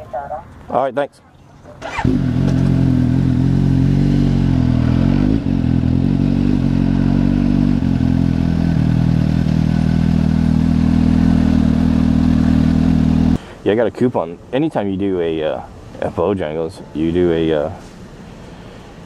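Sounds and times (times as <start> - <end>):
motorcycle engine running at low revs: 1.9 - 13.4.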